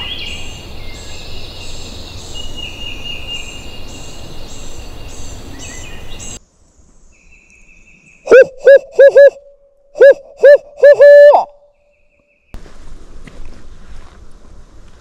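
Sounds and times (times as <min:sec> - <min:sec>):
steady high insect tone: 0:00.0 - 0:08.2.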